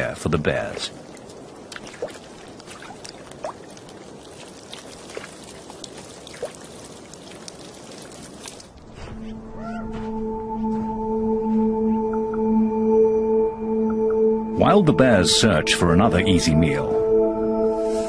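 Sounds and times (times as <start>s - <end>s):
water trickling and dripping: 0.0s - 9.1s
droning music chord: 9.2s - 18.0s.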